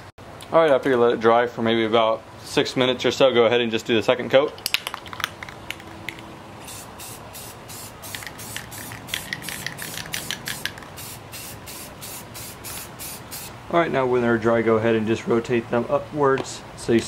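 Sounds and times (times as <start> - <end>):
spray paint can spraying: 4.8 - 13.5.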